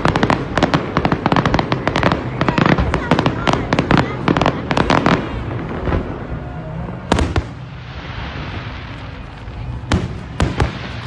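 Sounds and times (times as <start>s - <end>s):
fireworks bursting with sharp bangs: 0.0s - 11.0s.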